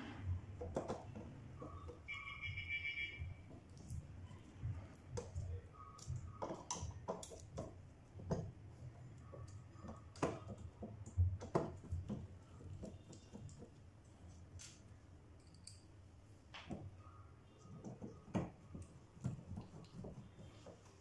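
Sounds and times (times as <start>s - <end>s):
small metal clicks and taps: 4.9s - 8.5s, 15.4s - 15.9s.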